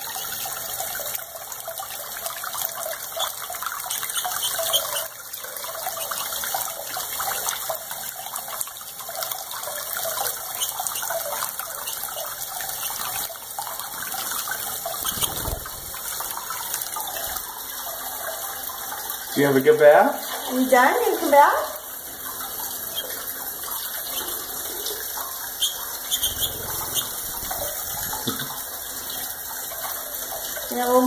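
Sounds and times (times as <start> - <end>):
tap water splashing into hands: 27.5 - 30.0.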